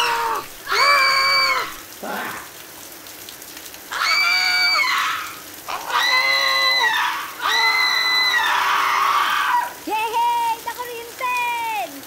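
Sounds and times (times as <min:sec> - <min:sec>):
woman and man screaming: 0:00.0 - 0:01.8, 0:03.9 - 0:09.8.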